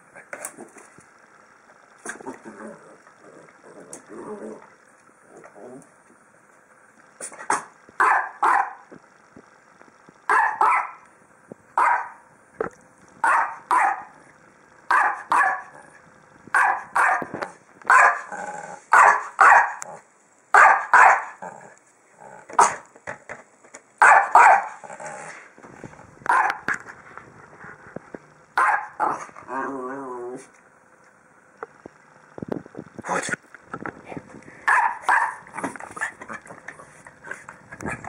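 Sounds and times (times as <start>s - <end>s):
small dog barking: 7.5s - 8.8s, 10.3s - 11.0s, 11.8s - 12.2s, 13.2s - 14.2s, 14.9s - 15.8s, 16.5s - 17.3s, 17.9s - 18.3s, 18.9s - 19.9s, 20.5s - 21.4s, 22.6s - 22.8s, 24.0s - 24.8s, 26.3s - 26.7s, 28.6s - 29.2s, 34.6s - 35.5s.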